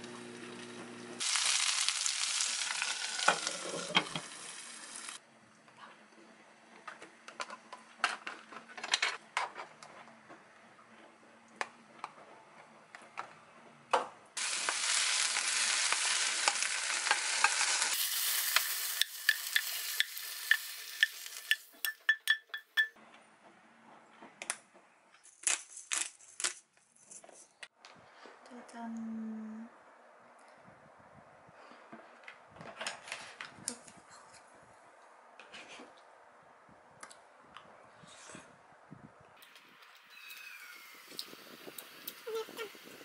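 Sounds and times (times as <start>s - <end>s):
frying pan sizzling: 0.0s - 5.2s, 14.4s - 22.9s
spatula scraping and tapping pan: 19.0s - 22.9s
utensils clinking on ceramic dish: 20.5s - 23.0s.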